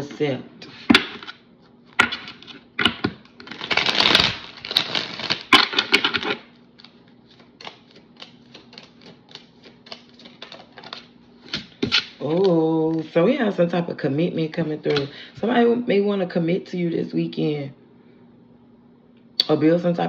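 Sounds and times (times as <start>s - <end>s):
cards shuffling: 2.0s - 13.2s, 14.8s - 15.2s.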